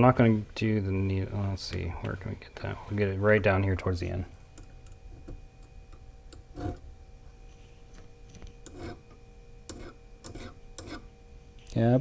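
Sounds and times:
file scraping steel bar: 8.7 - 9.1, 9.7 - 11.1.

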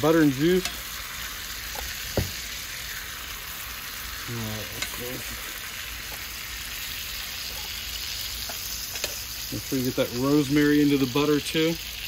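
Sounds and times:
steaks sizzling in a skillet: 0.0 - 12.0.

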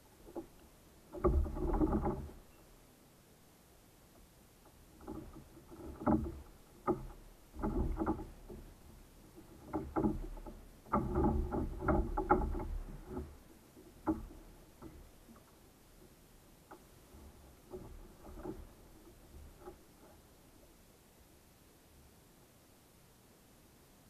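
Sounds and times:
gear knocking against kayak hull: 0.0 - 2.6, 4.6 - 20.3.

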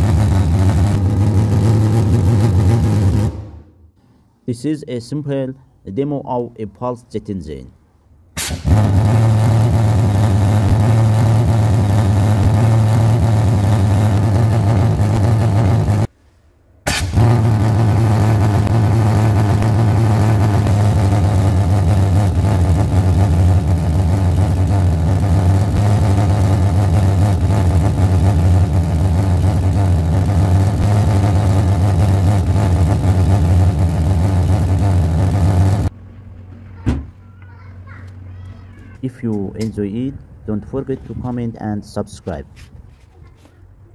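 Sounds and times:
pulse jet low buzz: 0.0 - 4.0, 8.4 - 16.1, 16.9 - 35.9.

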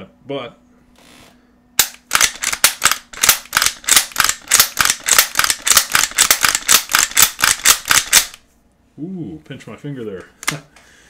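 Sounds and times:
rifle lever action clacking: 1.8 - 8.4.

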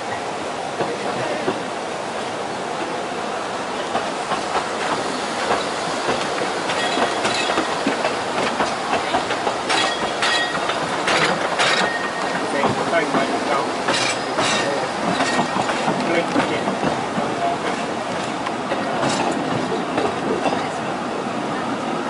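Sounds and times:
train wheels rumbling: 0.0 - 22.0
clicks over rail joints: 4.0 - 20.2.

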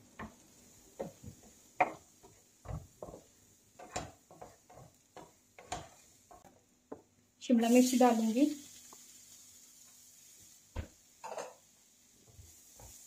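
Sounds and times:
wooden spatula scraping a pan: 1.0 - 6.6, 12.2 - 13.0.

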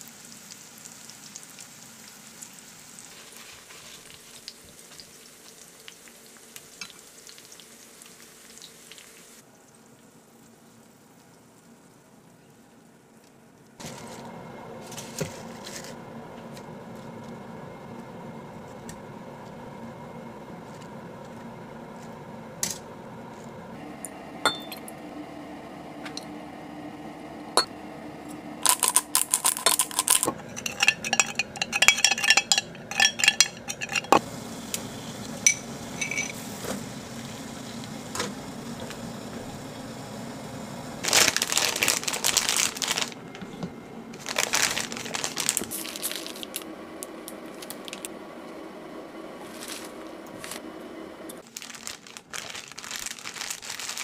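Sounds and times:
dishes and utensils clattering: 28.6 - 34.2, 35.5 - 36.4.

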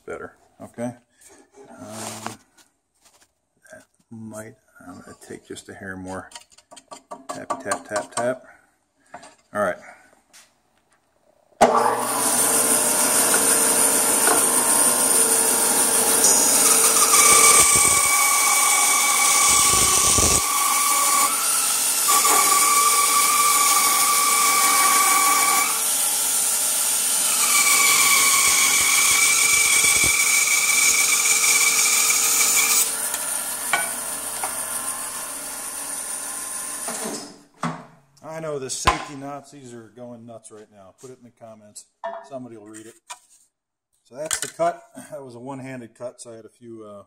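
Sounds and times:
bandsaw spinning down: 11.6 - 35.3
bandsaw whining while cutting wood: 11.6 - 37.2.

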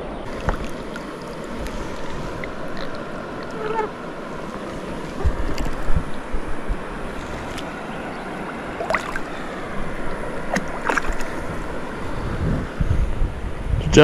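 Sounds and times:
river water rushing: 0.0 - 13.6
wind rumbling on microphone: 0.0 - 14.0.

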